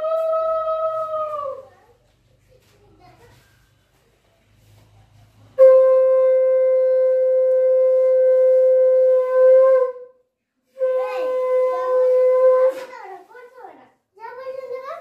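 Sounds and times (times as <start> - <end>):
conch shell blast: 5.6 - 12.7.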